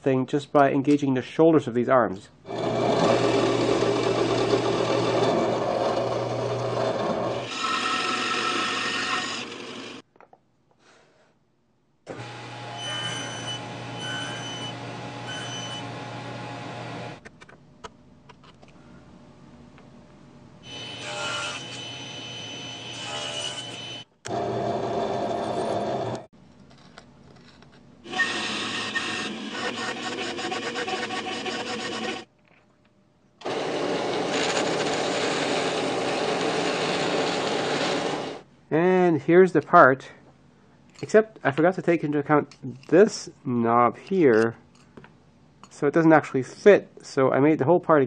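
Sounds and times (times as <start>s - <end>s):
bandsaw cutting wood: 2.5s - 10.0s, 28.1s - 32.3s, 33.4s - 38.4s
belt sander running: 2.5s - 10.0s
table saw humming: 2.5s - 10.0s, 12.1s - 17.2s, 20.6s - 26.3s, 28.1s - 32.3s, 33.4s - 38.4s.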